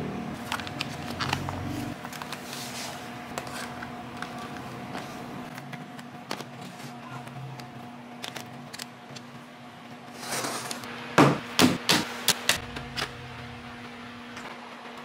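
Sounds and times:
low hum: 12.6s - 14.6s.

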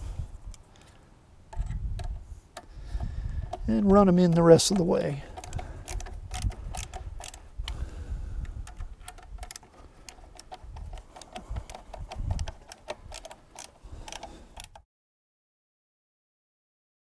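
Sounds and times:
screwdriver driving screw clicks: 4.3s - 7.8s, 8.7s - 14.8s.

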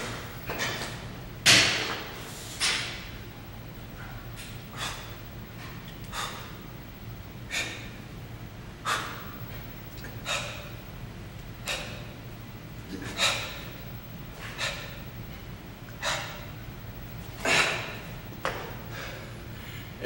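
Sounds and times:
man exhaling forcefully: 4.7s - 5.2s, 6.1s - 6.6s, 7.5s - 8.0s, 8.8s - 9.4s, 10.1s - 10.8s, 12.9s - 13.8s, 14.4s - 15.1s, 16.0s - 16.6s, 17.4s - 18.1s.

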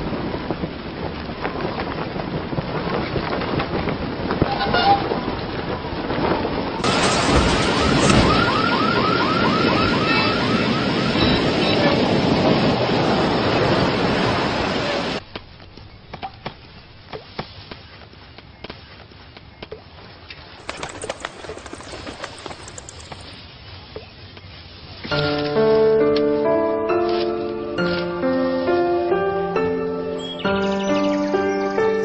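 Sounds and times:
rain: 0.0s - 15.4s, 19.8s - 26.2s
wind: 0.0s - 32.0s
scattered ticks: 20.6s - 23.4s.

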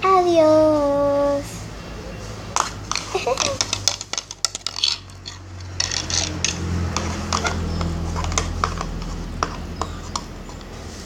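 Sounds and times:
toy hooves tapping on plastic: 2.6s - 10.7s.

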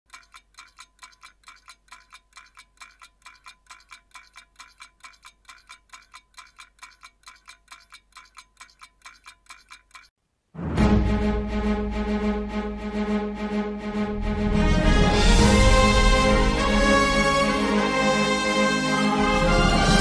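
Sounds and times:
rapid ringing ticks: 0.1s - 10.2s.

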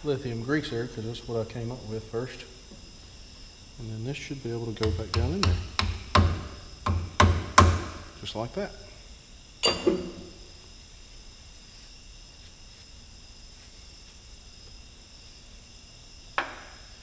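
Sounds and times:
faint high-pitched whine: 0.0s - 17.0s
metallic clanks with ring: 9.6s - 10.6s.

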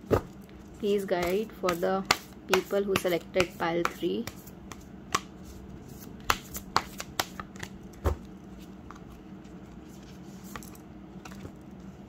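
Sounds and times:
cards being shuffled: 5.2s - 11.5s.

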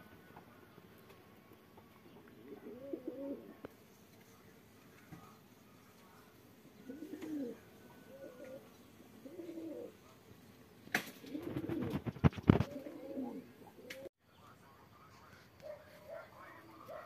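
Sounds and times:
dove cooing: 1.8s - 3.7s, 6.7s - 10.1s, 11.2s - 14.1s.

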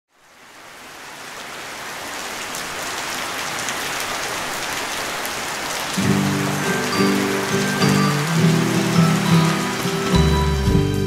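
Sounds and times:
falling rain hiss: 0.1s - 11.0s
band playing: 6.0s - 11.0s.

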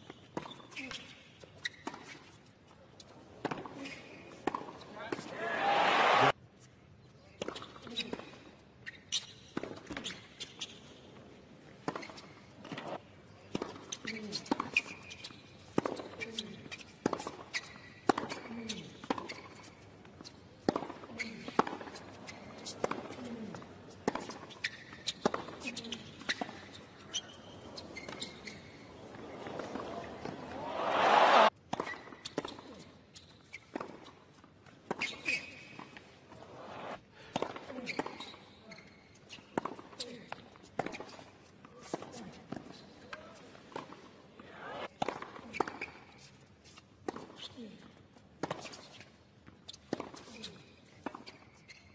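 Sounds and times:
shoe squeaks: 0.0s - 2.4s, 8.8s - 10.8s, 12.0s - 12.4s, 16.7s - 18.0s, 22.2s - 22.8s, 24.4s - 29.4s, 30.2s - 33.8s, 35.0s - 37.0s, 37.8s - 40.2s, 51.3s - 51.9s
crowd cheering: 5.3s - 6.3s, 29.8s - 31.5s
rackets hitting tennis ball: 28.0s - 32.6s.

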